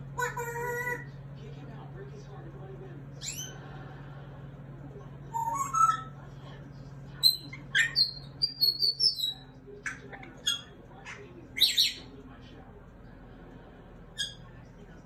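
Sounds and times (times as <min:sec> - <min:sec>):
parrot chirping: 0:00.1 - 0:01.1, 0:03.1 - 0:03.6, 0:05.3 - 0:06.2, 0:07.2 - 0:12.1, 0:14.1 - 0:14.6
parrot whistling: 0:05.3 - 0:06.1, 0:07.2 - 0:09.5.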